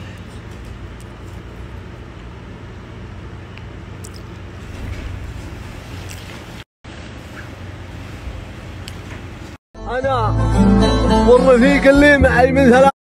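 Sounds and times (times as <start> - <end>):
low room hum: 0.0 - 9.6.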